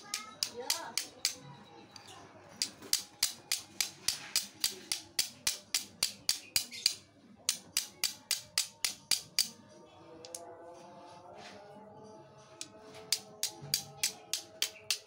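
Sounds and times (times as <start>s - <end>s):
soft background music: 7.0s - 15.0s
steel striker scraping stone: 13.1s - 15.0s.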